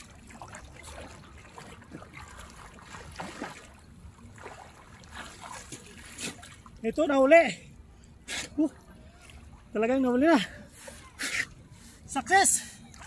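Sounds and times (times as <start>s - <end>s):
small water splash: 0.0s - 6.8s
seawater sloshing and lapping: 0.0s - 6.9s, 8.5s - 13.0s.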